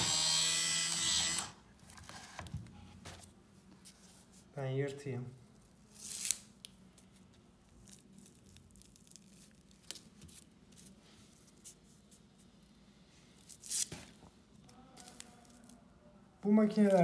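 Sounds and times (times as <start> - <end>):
faint paper crackling: 13.4 - 15.9, 16.6 - 17.0.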